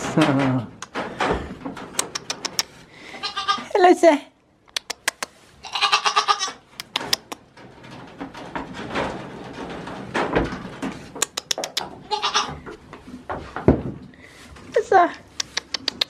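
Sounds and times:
wooden mesh door clicking and knocking: 0:00.0 - 0:02.4, 0:07.0 - 0:12.1, 0:13.3 - 0:14.0
goat bleating: 0:03.1 - 0:03.8, 0:05.6 - 0:06.6, 0:12.1 - 0:12.6.

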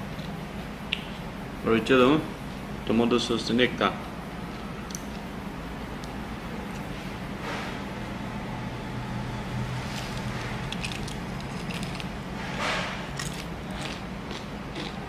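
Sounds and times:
crunching fried chicken: 0:09.8 - 0:15.0.

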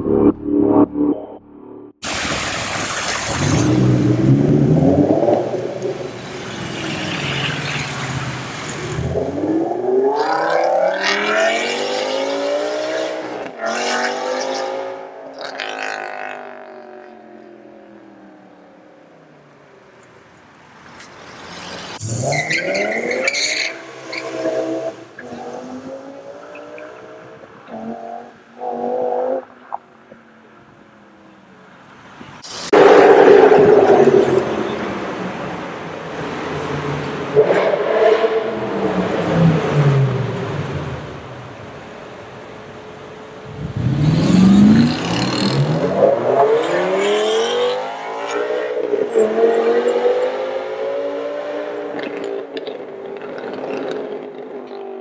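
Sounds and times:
loud rushing noise: 0:32.4 - 0:39.0
car engine revving: 0:43.4 - 0:53.9.

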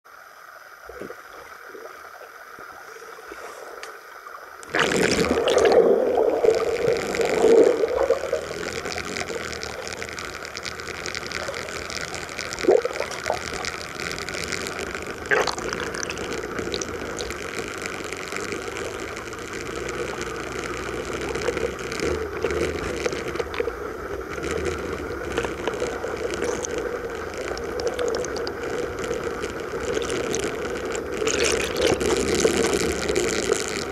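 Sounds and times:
muffled underwater water noise: 0:00.0 - 0:33.9
water bubbling and churning: 0:00.1 - 0:33.9.

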